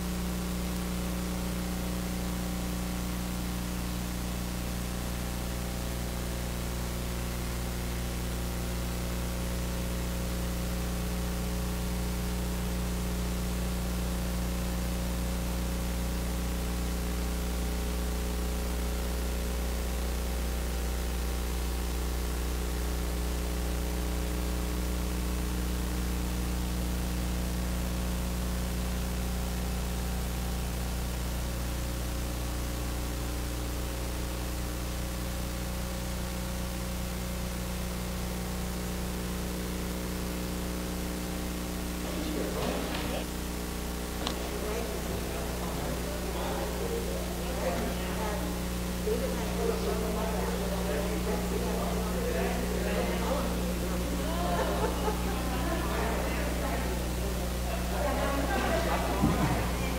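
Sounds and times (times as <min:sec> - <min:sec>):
low electrical hum: 0:00.0 - 0:59.9
steady hiss: 0:39.3 - 0:59.9.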